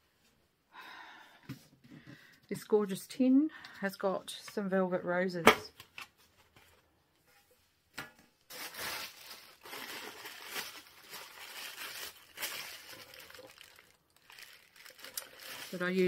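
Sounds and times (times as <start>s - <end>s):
wrapping paper rustling: 8.5s - 16.0s.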